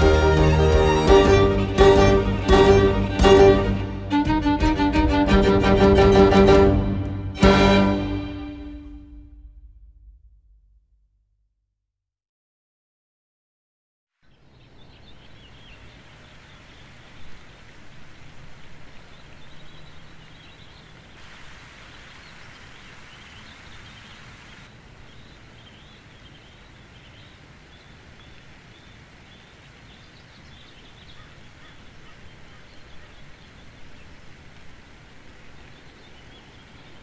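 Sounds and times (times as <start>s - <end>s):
background hiss: 0.0s - 10.0s, 14.3s - 37.0s
small birds chirping: 18.6s - 21.2s, 21.8s - 37.0s.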